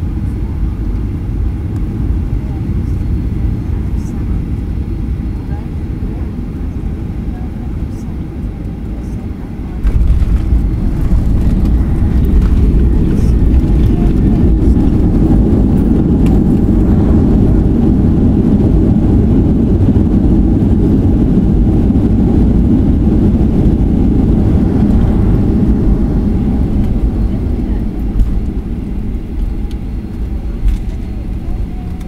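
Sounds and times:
jet engine roar: 0.0s - 32.0s
wheels rumbling on runway: 0.0s - 32.0s.

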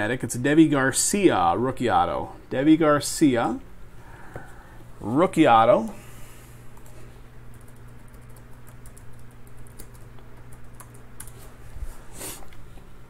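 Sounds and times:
computer keyboard typing: 7.5s - 11.4s.

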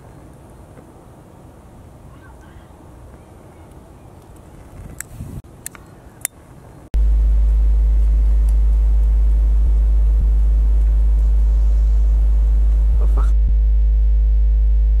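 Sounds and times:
low electronic hum: 7.0s - 15.0s.

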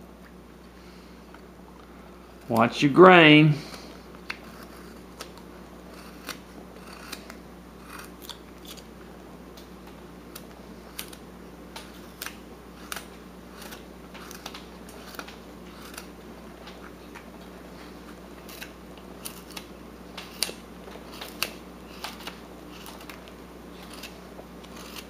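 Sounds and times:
knife carving wood clicks: 4.2s - 8.8s, 10.3s - 16.1s, 18.5s - 25.0s.

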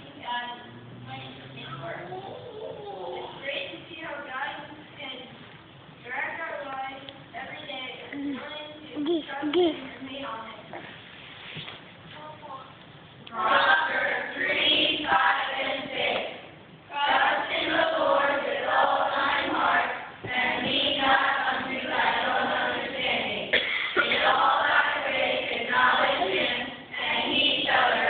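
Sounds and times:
children's choir singing: 13.3s - 28.0s.

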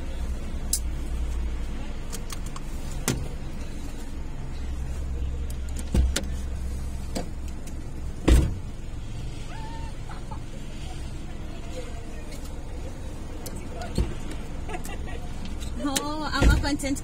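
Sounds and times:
car engine and road hum: 0.0s - 17.0s.

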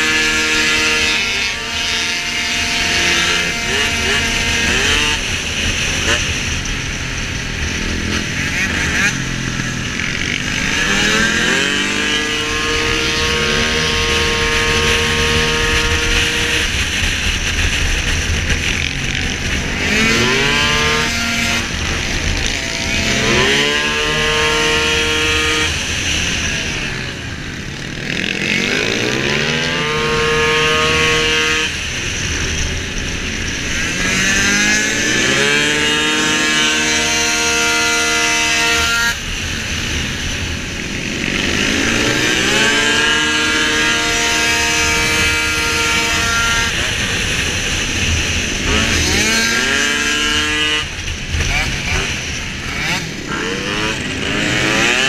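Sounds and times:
scooter engine at full throttle: 0.0s - 55.0s.

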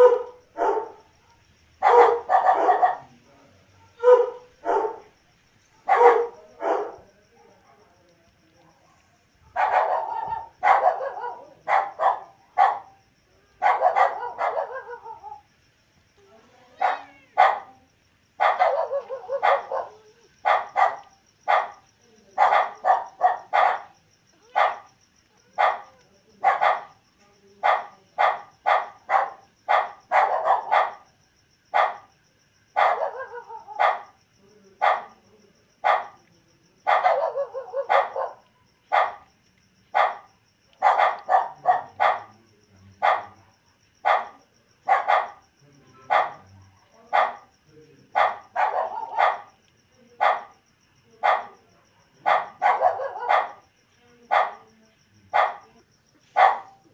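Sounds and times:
dog barking: 0.0s - 5.1s, 5.7s - 8.0s, 9.4s - 13.0s, 13.6s - 15.5s, 16.8s - 17.8s, 18.4s - 27.0s, 27.6s - 31.1s, 31.7s - 32.1s, 32.7s - 34.2s, 34.8s - 35.2s, 35.8s - 36.2s, 36.8s - 39.3s, 39.9s - 43.4s, 44.0s - 45.4s, 46.0s - 47.5s, 48.1s - 49.6s, 50.2s - 50.6s, 51.2s - 54.7s, 55.3s - 56.9s.

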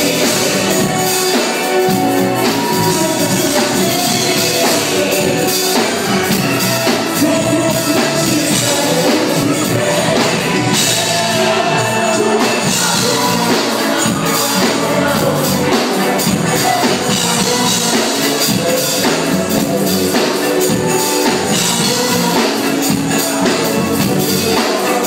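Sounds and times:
drum kit and cymbals: 0.0s - 25.0s
live band playing loud: 0.0s - 25.0s.

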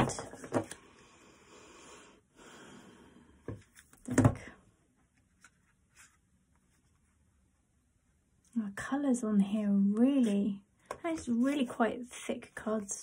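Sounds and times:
card deck rustling and sliding: 5.3s - 6.8s, 11.1s - 11.8s.

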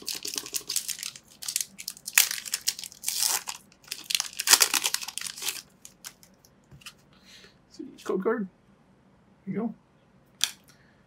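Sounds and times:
foil wrapper tearing and crinkling: 0.0s - 6.3s.

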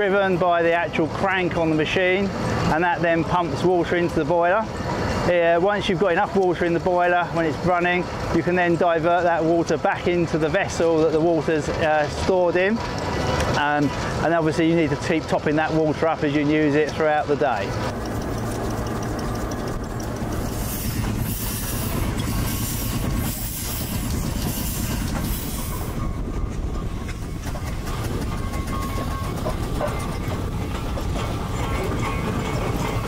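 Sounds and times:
mechanical clatter: 17.6s - 25.5s, 26.6s - 33.0s
steam hissing: 18.1s - 26.0s.

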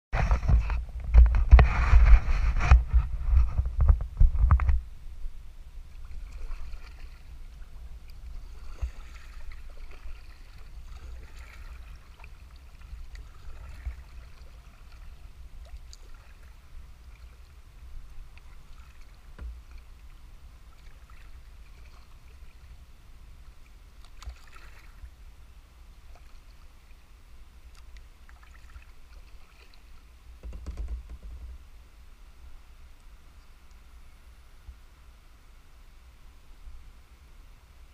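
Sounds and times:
paddle dipping in water: 0.2s - 4.8s, 5.7s - 34.0s
water lapping against hull: 0.2s - 4.8s, 5.7s - 31.8s
bumps on kayak: 30.4s - 31.6s.

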